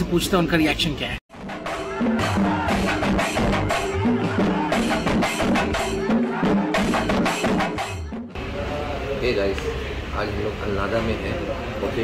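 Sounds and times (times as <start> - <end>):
background music with percussion beat: 1.3 - 8.4.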